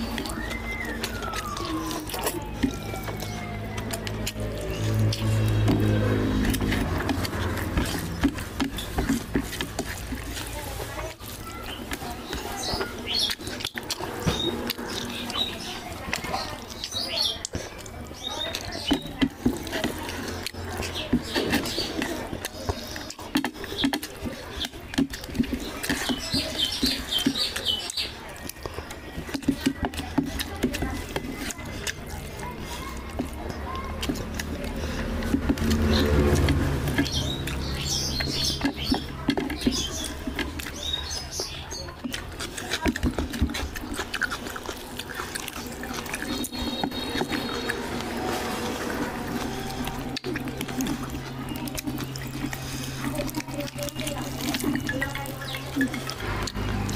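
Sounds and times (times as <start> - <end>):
hand squelching rice: 0.0 - 28.2
wet open-mouthed chewing: 0.0 - 56.9.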